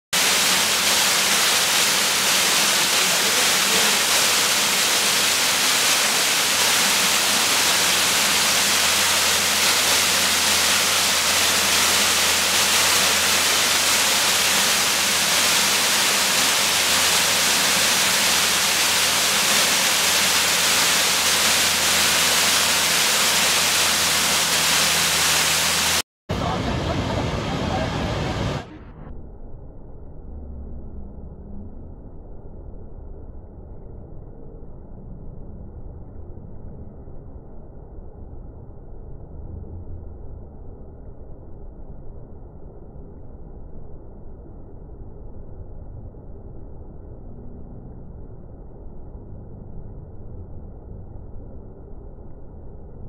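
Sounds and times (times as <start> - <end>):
waterfall rushing over rock: 0.2 - 28.7.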